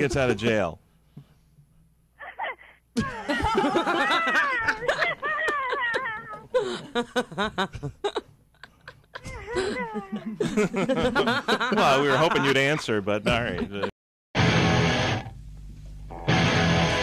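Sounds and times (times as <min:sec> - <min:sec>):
woman laughing hard: 0:02.2 - 0:12.7.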